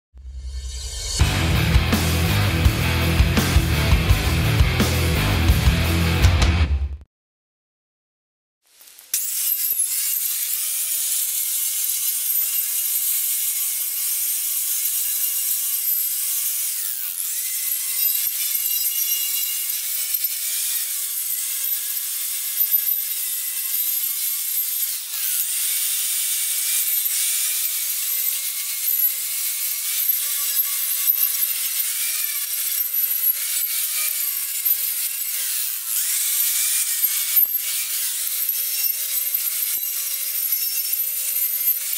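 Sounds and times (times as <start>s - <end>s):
wire wheel grinding steel: 9.1s - 41.9s.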